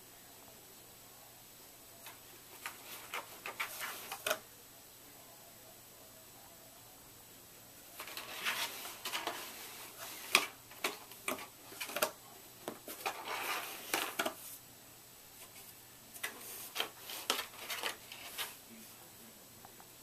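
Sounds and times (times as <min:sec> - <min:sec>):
cat scraping cardboard box: 0:02.6 - 0:04.4, 0:08.0 - 0:12.1, 0:12.8 - 0:14.5, 0:16.2 - 0:18.6.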